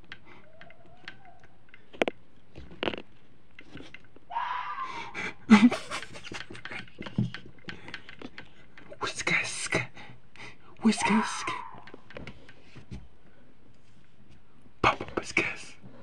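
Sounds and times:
fox screaming: 0.3 - 1.6, 4.3 - 5.3, 10.8 - 12.0.

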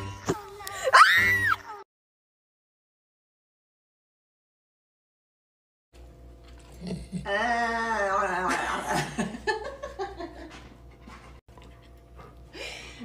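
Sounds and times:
woman laughing: 8.2 - 10.7.

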